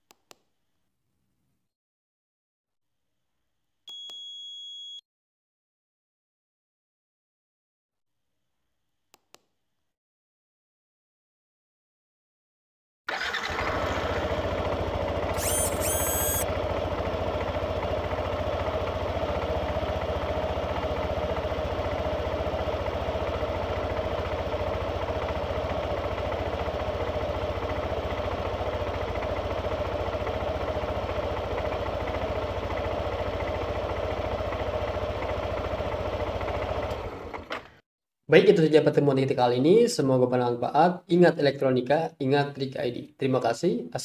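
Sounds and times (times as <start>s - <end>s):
motorcycle engine starting and idling: 13.1s - 37.8s
high chirping sound: 15.4s - 16.4s.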